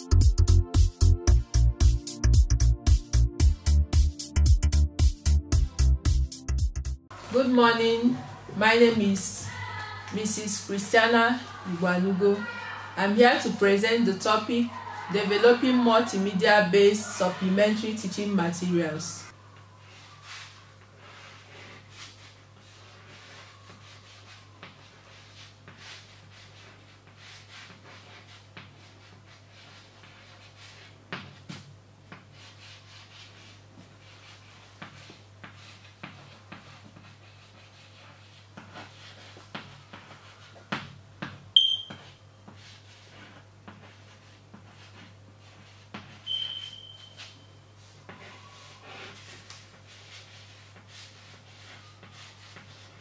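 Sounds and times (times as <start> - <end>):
chalk squeak: 19.8 - 28.3, 41.6 - 43.4, 45.5 - 53.0
chalk scratching on chalkboard: 19.8 - 41.0, 41.9 - 53.0.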